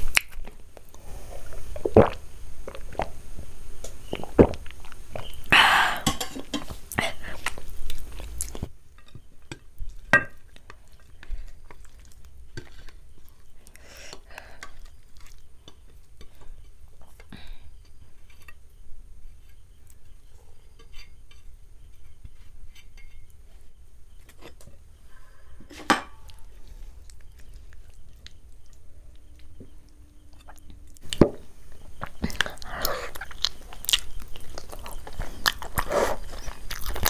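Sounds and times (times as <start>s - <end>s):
food stirred on a plate: 6.0s - 24.7s.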